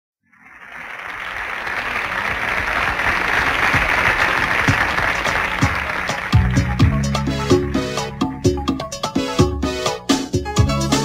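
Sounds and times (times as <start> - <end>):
audience applauding: 0.3 - 8.5.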